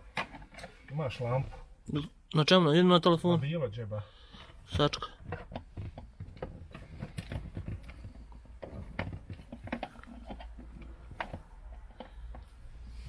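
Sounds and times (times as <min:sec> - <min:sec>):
wiring connectors rattling: 0:04.3 - 0:13.0.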